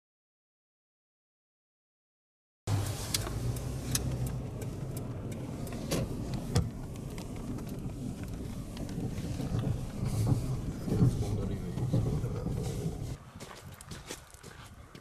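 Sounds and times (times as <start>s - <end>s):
car engine hum: 2.7s - 13.5s
road noise: 2.7s - 15.0s.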